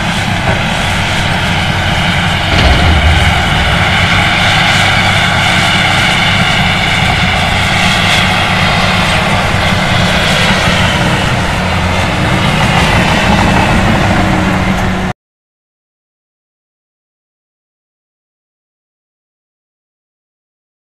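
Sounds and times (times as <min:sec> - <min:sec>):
bulldozer diesel engine under load: 0:00.0 - 0:15.1.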